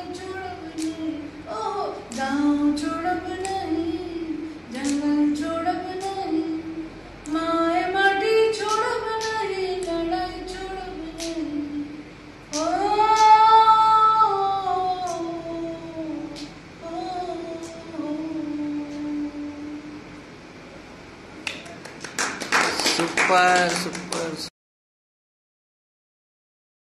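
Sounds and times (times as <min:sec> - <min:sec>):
woman singing unaccompanied: 0:00.0 - 0:20.2.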